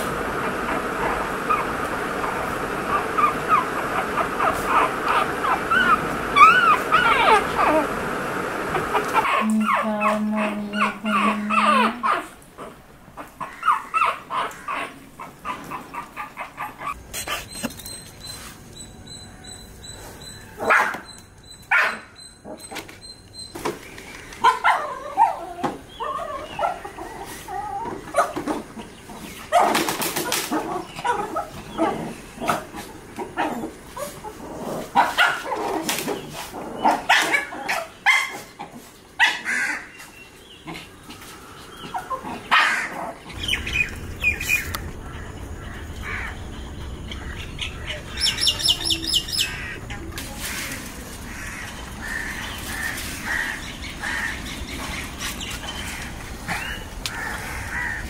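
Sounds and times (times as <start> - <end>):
puppies yipping and squealing: 0.3 - 8.0, 8.7 - 58.0
high chirps: 43.3 - 49.8.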